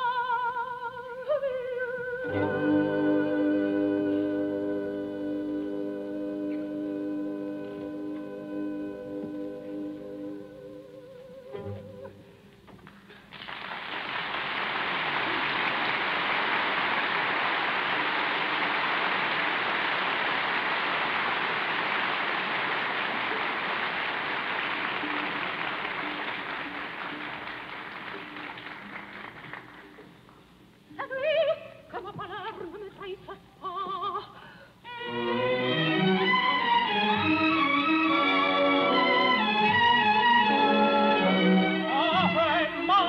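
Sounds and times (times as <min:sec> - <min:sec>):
opera singer: 0:00.0 - 0:12.5, 0:30.9 - 0:43.0
orchestra playing: 0:02.2 - 0:12.2, 0:17.8 - 0:29.2, 0:34.9 - 0:43.0
audience applauding: 0:13.1 - 0:30.4.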